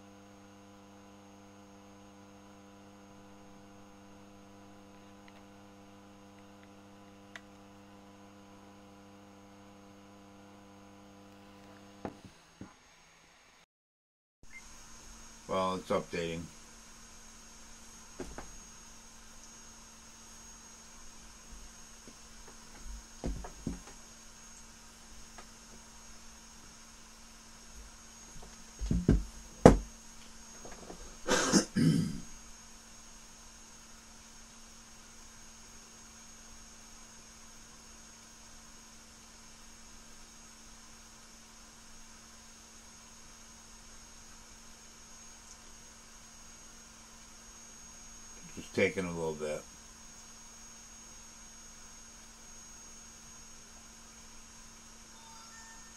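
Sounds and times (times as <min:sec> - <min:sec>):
faint electrical hum: 0:00.0 - 0:13.6, 0:14.5 - 0:55.9
knocks on wooden tabletop: 0:23.2 - 0:24.0, 0:28.8 - 0:29.9
man coughing: 0:31.3 - 0:32.3.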